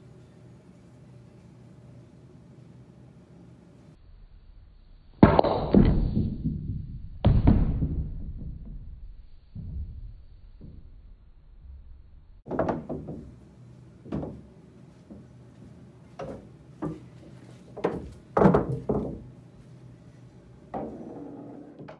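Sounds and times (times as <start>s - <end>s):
irregular knocks and thuds ringing: 12.5s - 13.4s, 14.1s - 14.5s, 17.8s - 19.3s.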